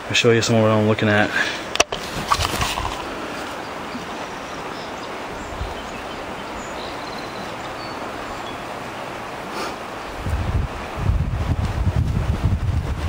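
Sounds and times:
river rushing over rocks: 0.0 - 11.6.

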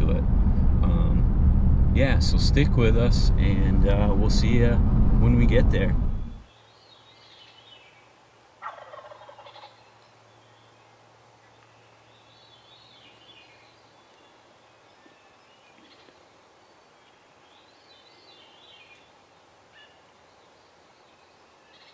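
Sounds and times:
wild turkey gobbling: 8.6 - 9.8.

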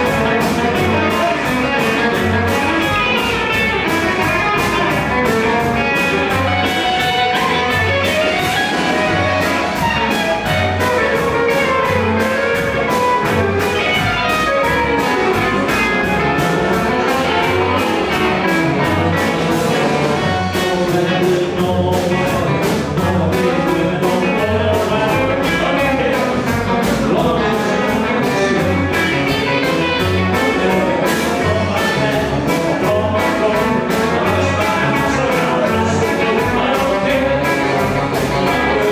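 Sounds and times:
double bass: 0.0 - 38.9
drums: 0.0 - 38.9
electric guitars: 0.0 - 38.9.

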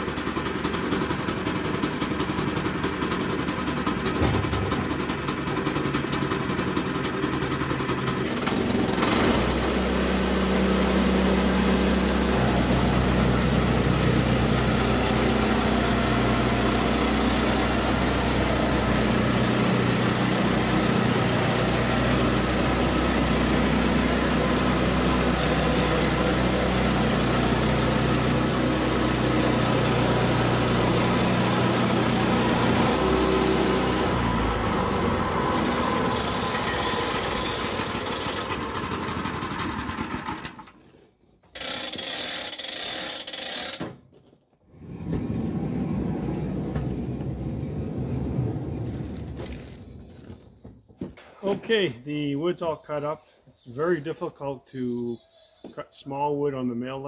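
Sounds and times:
sawmill gas engine: 0.0 - 44.0, 44.7 - 50.5
band blade sawing wood: 8.4 - 38.5.

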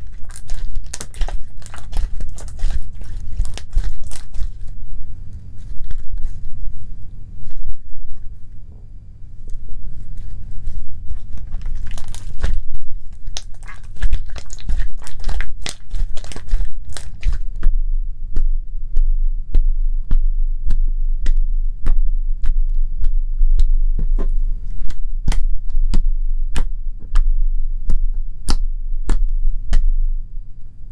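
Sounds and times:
slime crackling and popping: 0.0 - 8.2, 9.4 - 17.8
steady low hum: 0.0 - 30.9.

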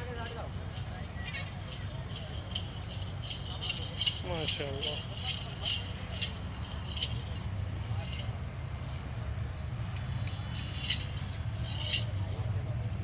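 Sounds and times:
bells jingling: 0.0 - 13.0
steady low rumble: 0.0 - 13.0.

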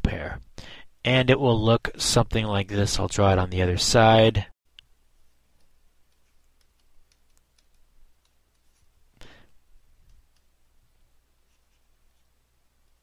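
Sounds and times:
pen tapping on drawing tablet: 6.1 - 8.7.

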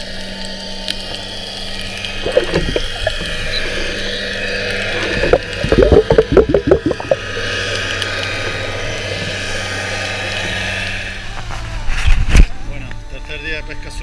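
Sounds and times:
underwater water wash: 0.0 - 12.4
bubbling gurgling pulses: 1.8 - 9.8.

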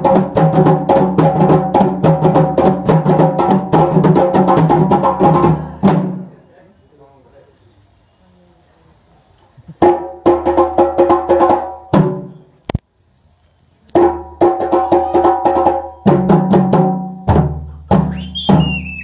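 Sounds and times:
deep drum: 0.0 - 6.3, 14.0 - 18.8.

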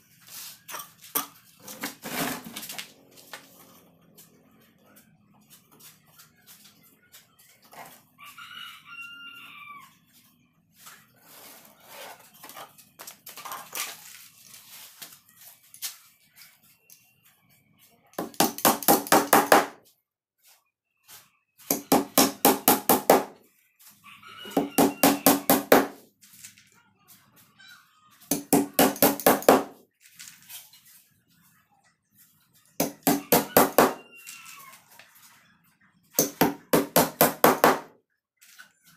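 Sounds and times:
rooster crowing: 8.2 - 10.0, 24.0 - 25.9, 32.9 - 34.8
hammer beating on wooden box: 18.2 - 19.8, 21.7 - 23.4, 24.6 - 26.0, 28.3 - 29.8, 32.8 - 34.0, 36.2 - 37.9.

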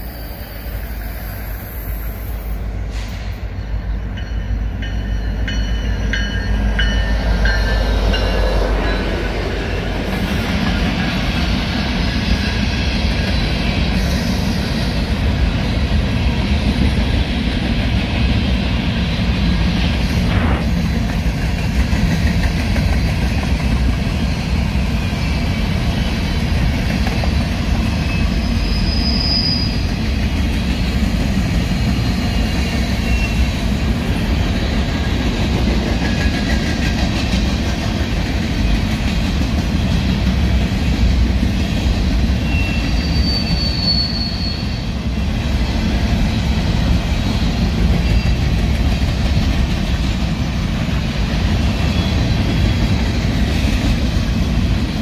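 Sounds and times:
train wheels rumbling on rail: 0.0 - 55.0
wheel squeals: 27.1 - 30.0, 42.4 - 44.9.

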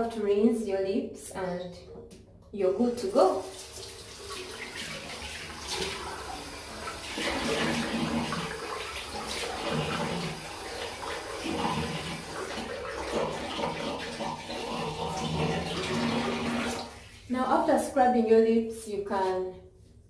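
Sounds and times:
sink tap running: 3.4 - 16.9.

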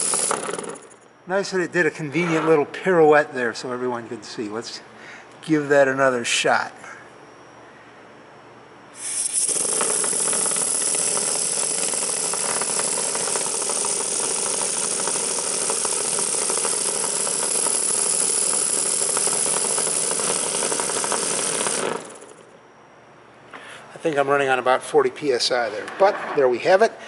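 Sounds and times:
model steam engine running: 0.0 - 0.8, 9.0 - 22.4.

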